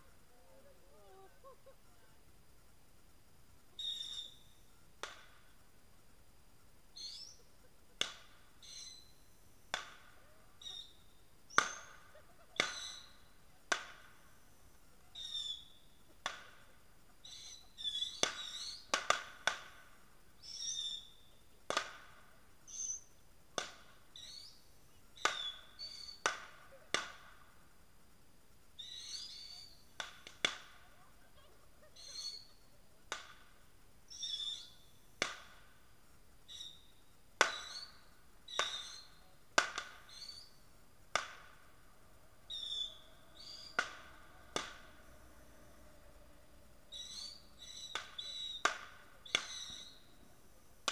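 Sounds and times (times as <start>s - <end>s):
embers crackling and popping: 0.0s - 50.9s
high squeal from embers: 3.8s - 4.7s, 6.9s - 7.5s, 10.6s - 13.5s, 14.3s - 16.1s, 17.2s - 19.0s, 20.4s - 21.4s, 22.6s - 23.2s, 24.1s - 26.3s, 28.8s - 30.0s, 31.4s - 32.7s, 34.1s - 35.0s, 36.4s - 39.3s, 40.0s - 40.7s, 42.4s - 50.3s.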